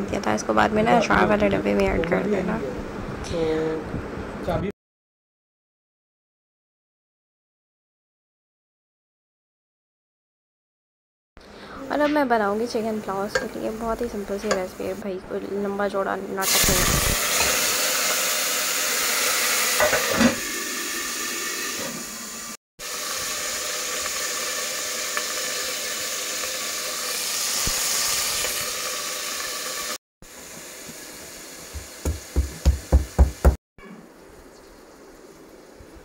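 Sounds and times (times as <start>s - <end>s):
food sizzling: 16.4s - 33.6s.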